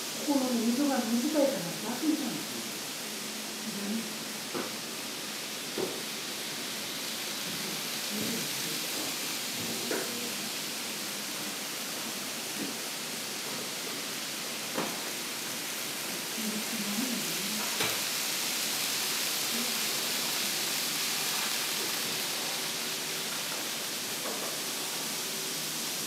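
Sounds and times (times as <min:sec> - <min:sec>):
steady hiss: 0:00.0 - 0:26.0
faint voices: 0:08.1 - 0:09.0.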